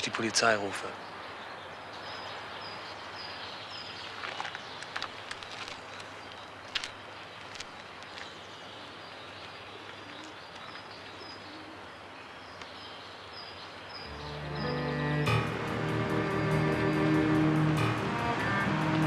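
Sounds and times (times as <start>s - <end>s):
small birds chirping: 0.0s - 19.0s
steady background hiss: 0.0s - 19.0s
low sustained music note: 14.1s - 19.0s.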